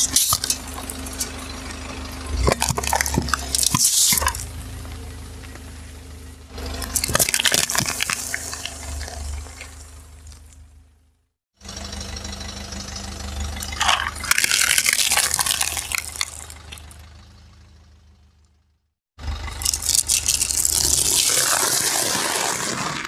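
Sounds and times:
egg shells cracking under tyre: 0.0s - 1.5s, 2.3s - 4.5s, 6.8s - 10.6s, 13.6s - 16.9s, 19.6s - 23.0s
car engine humming: 0.0s - 23.0s
tyre crushing crunchy snacks: 2.3s - 4.5s, 6.8s - 10.6s, 13.6s - 16.8s, 19.6s - 23.0s.

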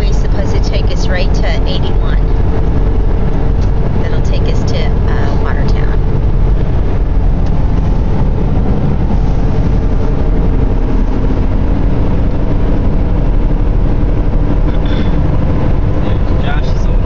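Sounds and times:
car road and engine noise: 0.0s - 17.0s.

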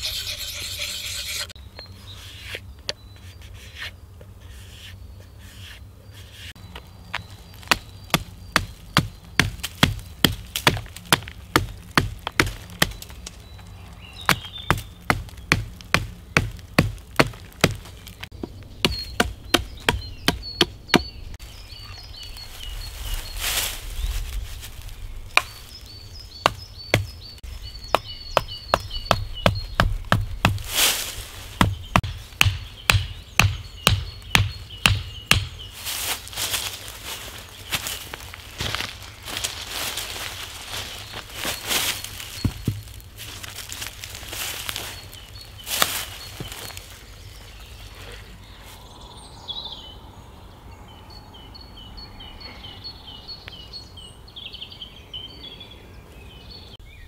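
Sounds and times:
stone rasping on hatchet blade: 0.0s - 1.6s
hatchet chopping branch: 7.6s - 13.1s, 14.3s - 21.1s, 25.4s - 25.6s, 27.9s - 30.7s, 31.6s - 35.6s.

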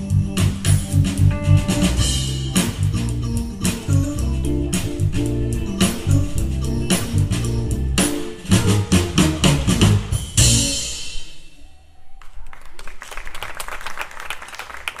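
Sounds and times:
live rock band playing: 0.0s - 11.5s
audience applause: 12.1s - 15.0s.

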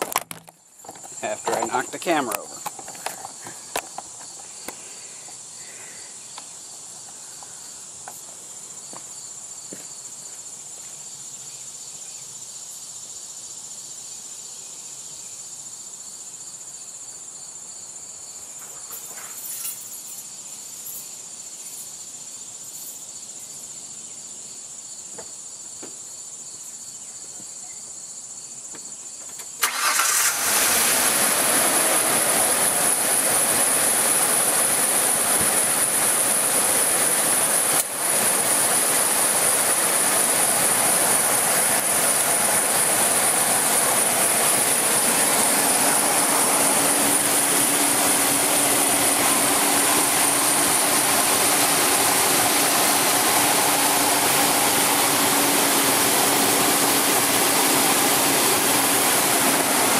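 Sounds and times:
truck engine starting and running: 0.0s - 4.7s, 29.6s - 59.9s
insects trilling: 0.7s - 30.9s.

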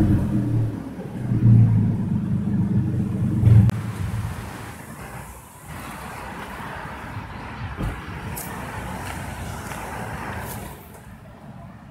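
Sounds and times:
car engine idling: 0.0s - 5.1s.

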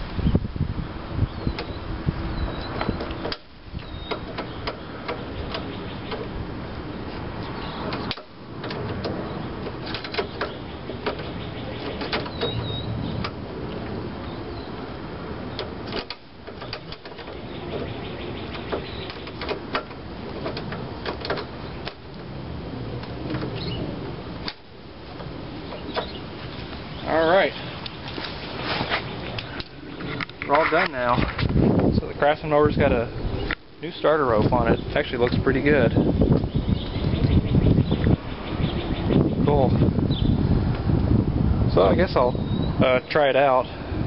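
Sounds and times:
steady background hiss: 0.0s - 44.0s
sharp clicks and rubbing: 2.6s - 6.4s, 7.1s - 14.0s, 15.5s - 22.2s, 27.8s - 31.6s.

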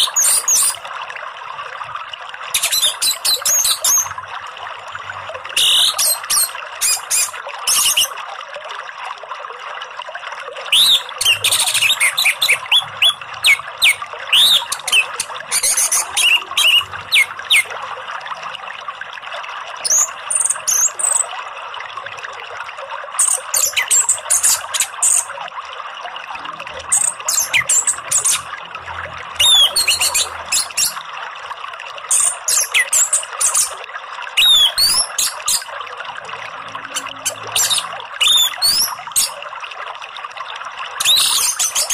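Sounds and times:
flowing water rushing: 0.0s - 41.9s
bird singing whistles: 5.6s - 8.1s, 10.7s - 17.7s, 27.0s - 28.4s, 29.4s - 31.0s, 34.4s - 35.6s, 37.6s - 39.3s, 41.0s - 41.9s.

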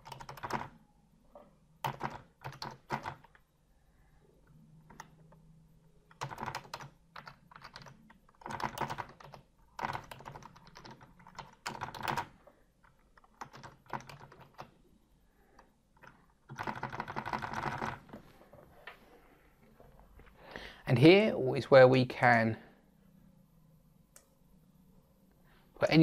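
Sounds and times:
typing on computer keyboard: 0.0s - 0.7s, 1.8s - 3.4s, 4.9s - 5.4s, 6.1s - 14.7s, 15.6s - 18.0s.

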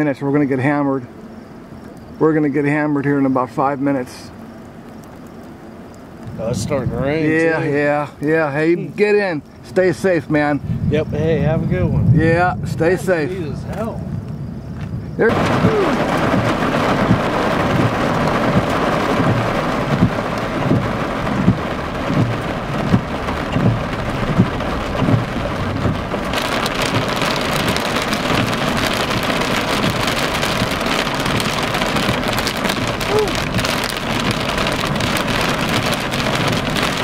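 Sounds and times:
heavy rain drumming on car roof: 2.2s - 10.6s, 11.2s - 37.0s
short low thumps: 10.6s - 34.5s.

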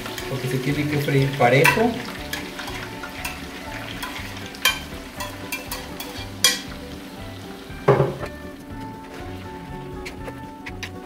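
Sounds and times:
fish sizzling in hot oil: 0.0s - 10.0s
metal tongs clicking: 4.0s - 6.7s
heavy knock on clay pot: 7.9s - 8.4s.

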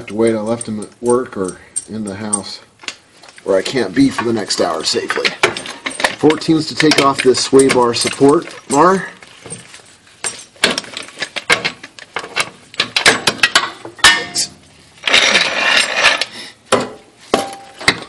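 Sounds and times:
clanking sockets and metal parts: 0.0s - 18.0s.

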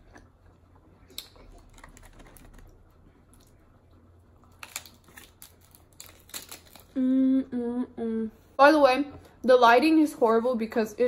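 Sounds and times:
crisp shell crunching: 1.1s - 2.8s, 4.4s - 7.0s.

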